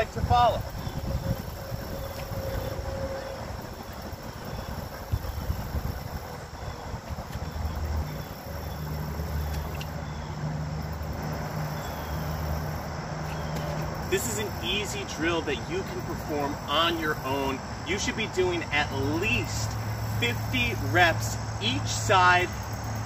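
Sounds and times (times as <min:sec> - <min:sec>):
wind rumbling on microphone: 0:00.0 - 0:10.4
faint insect chirping: 0:00.0 - 0:23.0
low vehicle engine hum: 0:00.0 - 0:23.0.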